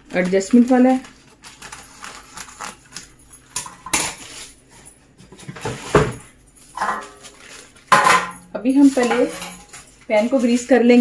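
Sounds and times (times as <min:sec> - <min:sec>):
paper rustling: 0:00.0 - 0:08.0
scissors snipping paper: 0:00.1 - 0:03.2.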